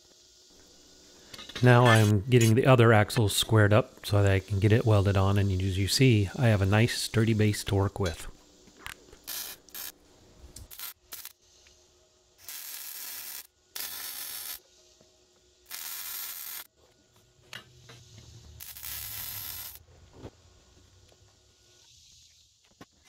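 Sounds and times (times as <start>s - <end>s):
arc welding hiss: 0.0s - 11.8s, 12.4s - 14.8s, 15.6s - 16.7s, 18.0s - 19.8s.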